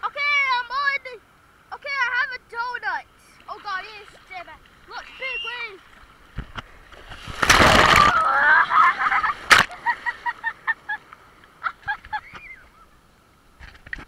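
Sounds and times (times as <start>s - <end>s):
person laughing: 8.1s - 11.0s, 11.6s - 12.8s.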